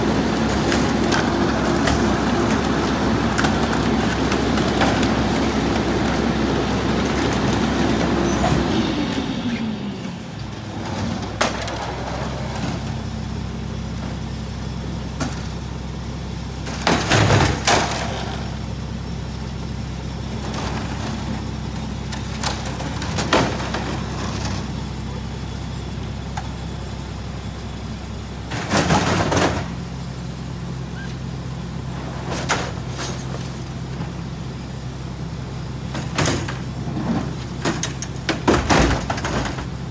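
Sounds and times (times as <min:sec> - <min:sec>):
garbage truck diesel engine: 0:00.0 - 0:39.9
boards thrown into hopper: 0:10.8 - 0:13.0, 0:16.7 - 0:18.6, 0:22.2 - 0:24.7, 0:28.5 - 0:29.8, 0:35.9 - 0:39.8.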